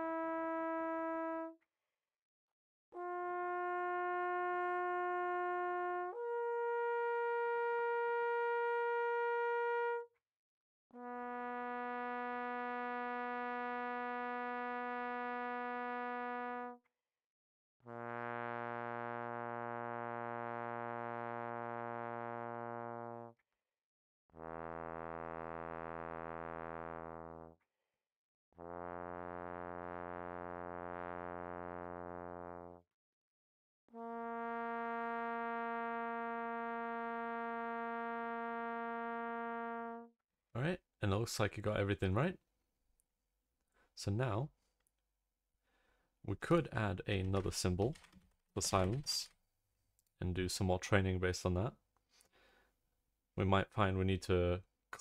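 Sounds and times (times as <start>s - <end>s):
trombone long tones: 0.0s - 1.6s, 3.0s - 10.1s, 11.0s - 16.8s, 17.9s - 23.4s, 24.4s - 27.6s, 28.6s - 32.8s, 33.9s - 40.7s, 46.4s - 49.2s.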